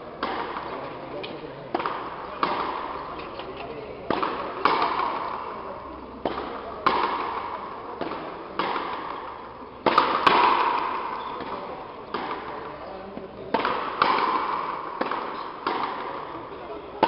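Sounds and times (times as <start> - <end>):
racquets cracking rubber ball: 4.0 - 17.0.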